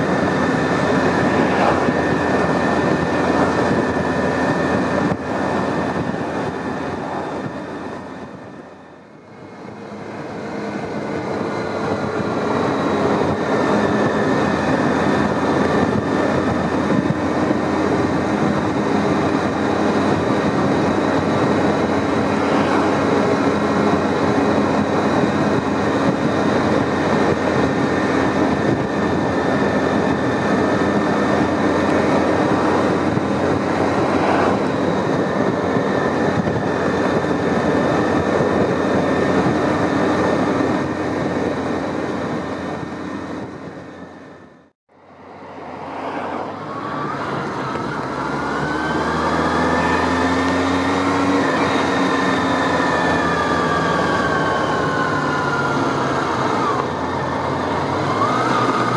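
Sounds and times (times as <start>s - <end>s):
wind rush on microphone: 0.0s - 44.2s
motorcycle engine running: 0.0s - 44.6s.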